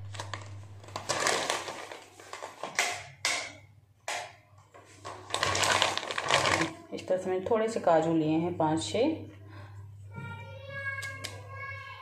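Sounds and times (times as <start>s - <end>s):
plastic packet crinkling: 0.0s - 3.0s, 4.9s - 6.8s.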